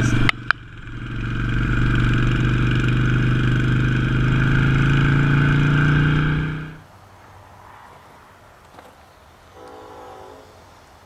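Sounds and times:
motorcycle engine running: 0.0 - 6.8.

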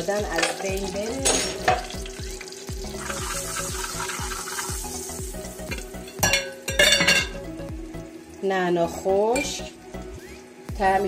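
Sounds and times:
spice sizzling in hot oil: 0.0 - 11.0.

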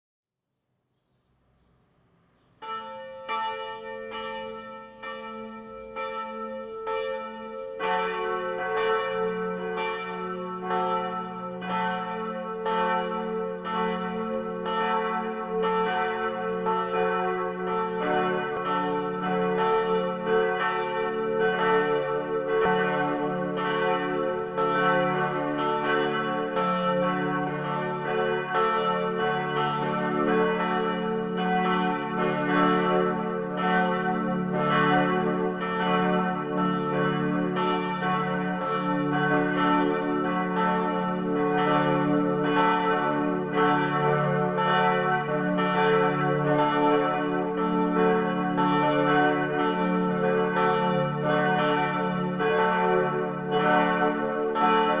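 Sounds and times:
church bell ringing: 2.5 - 55.0
deeper church bell ringing: 2.5 - 55.0.

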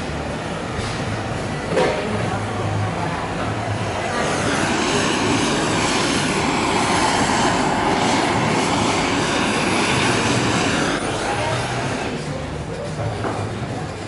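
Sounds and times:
gas blowtorch hissing: 0.1 - 14.0.

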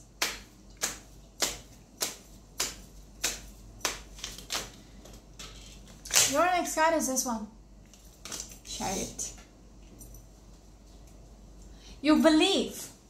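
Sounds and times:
cards being shuffled: 0.2 - 6.4.

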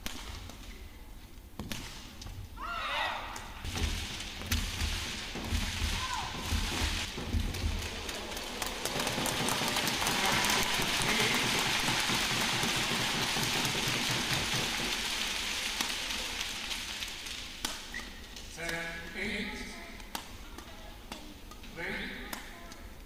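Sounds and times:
racket striking shuttlecock: 0.0 - 0.8, 1.6 - 2.3, 17.4 - 18.9, 20.0 - 22.9
arena crowd noise: 5.9 - 18.0.

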